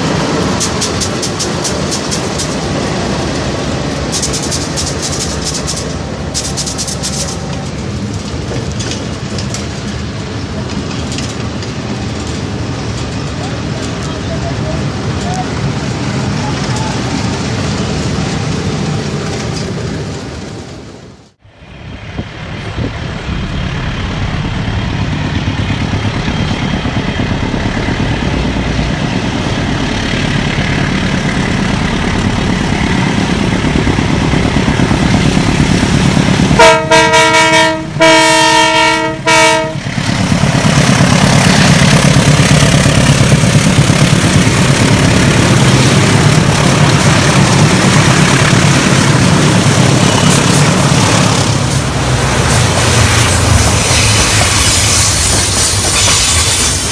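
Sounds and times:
locomotive engine rumble: 0:00.0 - 0:56.9
locomotive horn chord blasts: 0:36.6 - 0:39.9.

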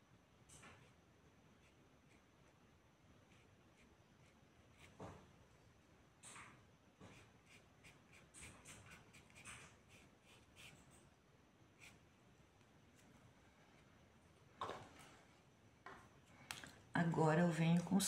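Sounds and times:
paintbrush scratching on cloth: 0:07.1 - 0:11.0.

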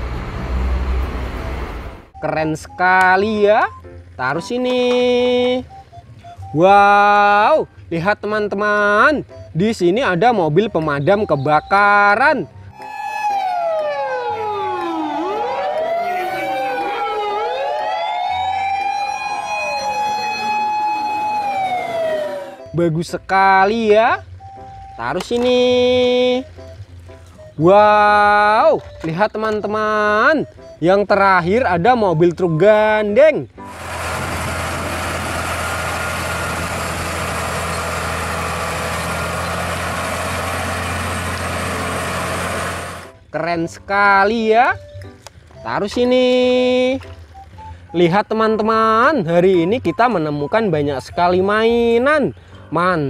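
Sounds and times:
truck diesel engine humming: 0:00.0 - 0:04.4, 0:05.5 - 0:06.8, 0:33.5 - 0:43.3
fire engine sirens wailing: 0:11.0 - 0:22.9, 0:33.6 - 0:43.2.

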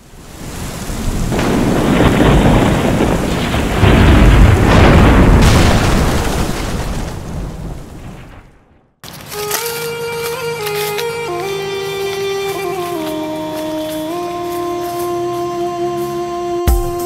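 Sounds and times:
rain: 0:00.0 - 0:08.7
rolling rumble of thunder: 0:00.8 - 0:09.0.

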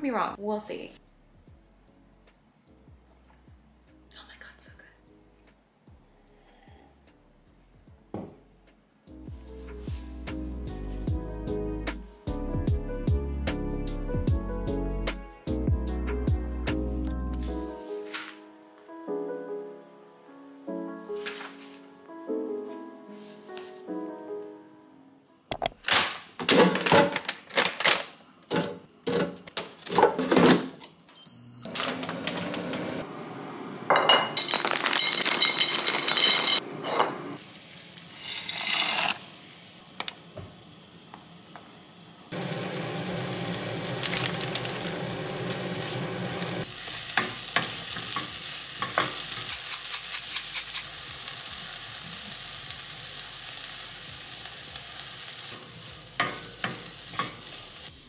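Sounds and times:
vegetables sizzling in a pan: 0:37.4 - 0:58.0.

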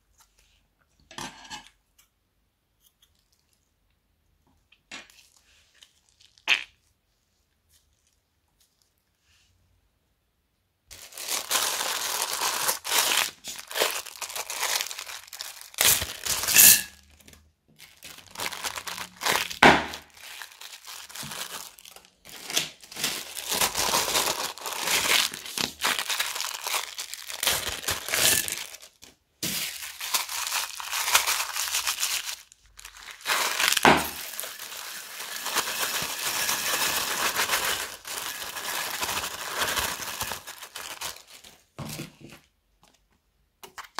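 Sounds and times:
plastic bags crinkling: 0:10.9 - 0:42.4.

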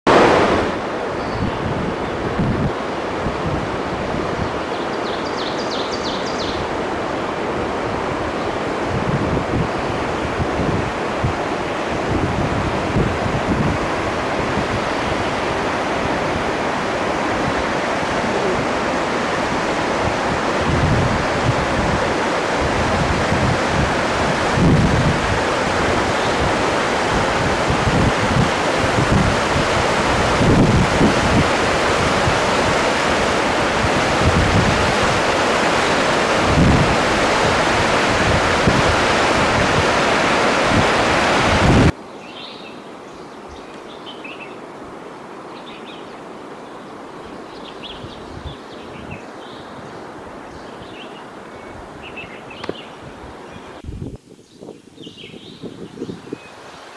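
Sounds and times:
river rushing over rocks: 0:00.1 - 0:43.0.

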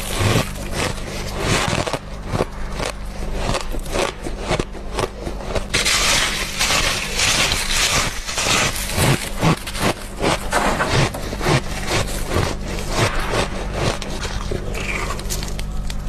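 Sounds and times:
crunching frost: 0:00.0 - 0:16.0
steady low hum: 0:00.0 - 0:16.0.

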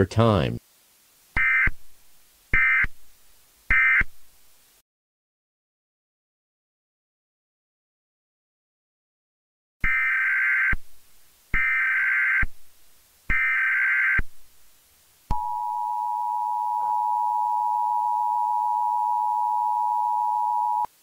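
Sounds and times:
short buzzing data bursts: 0:01.4 - 0:01.8, 0:02.5 - 0:03.0, 0:03.7 - 0:04.2, 0:09.8 - 0:10.8, 0:13.3 - 0:14.3
two-tone alert signal: 0:15.3 - 0:20.9.

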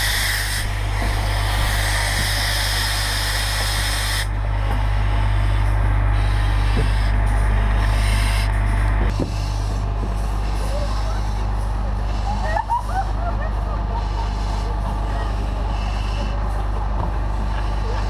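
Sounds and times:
breathing apparatus air hiss: 0:00.0 - 0:04.3, 0:05.3 - 0:12.6, 0:13.9 - 0:16.6
fire engine rumble: 0:00.0 - 0:18.0.

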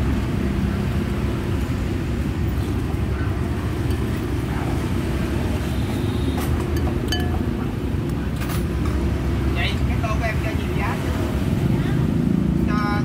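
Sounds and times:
road traffic rumble: 0:00.0 - 0:13.0
spoon clinking on ceramic bowl: 0:06.7 - 0:07.5.

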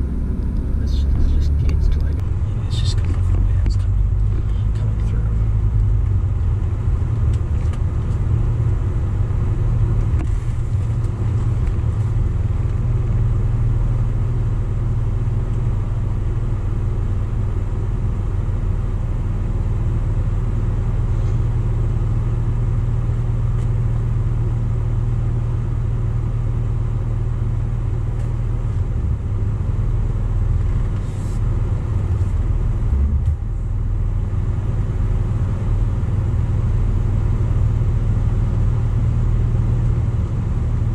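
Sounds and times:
car engine idling: 0:00.0 - 0:40.9.

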